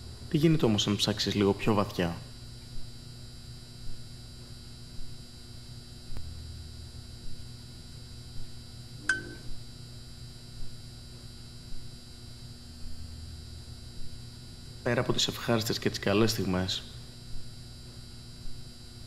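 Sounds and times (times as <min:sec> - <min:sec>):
low steady hum: 0:00.0 - 0:19.0
sharp click with ring: 0:09.0 - 0:09.5.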